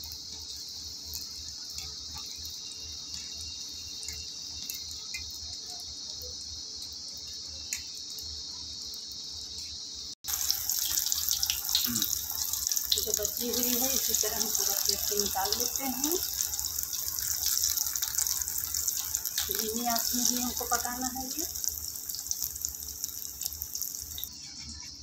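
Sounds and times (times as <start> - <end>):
oil sizzling around frying fritters: 0.0 - 25.0.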